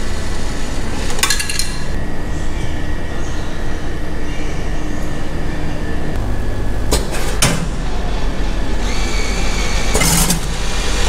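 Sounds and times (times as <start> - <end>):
mechanism whirring: 0.0 - 11.0
vending machine humming: 0.0 - 11.0.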